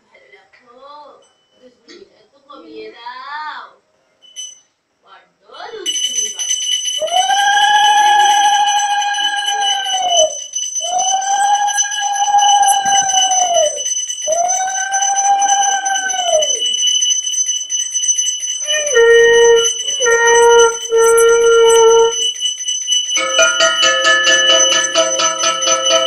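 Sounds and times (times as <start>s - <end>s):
high ringing hand bell: 4.2s - 4.7s, 5.8s - 26.0s.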